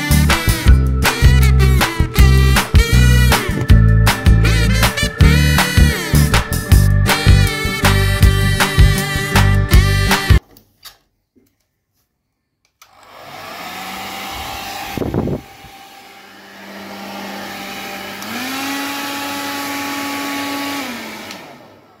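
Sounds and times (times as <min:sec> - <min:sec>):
hair dryer running: 0:12.8 - 0:22.0.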